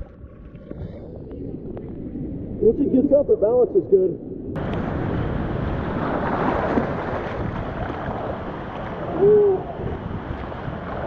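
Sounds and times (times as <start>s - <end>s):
whitewater rushing: 4.6s - 11.0s
person hooting: 9.1s - 9.7s.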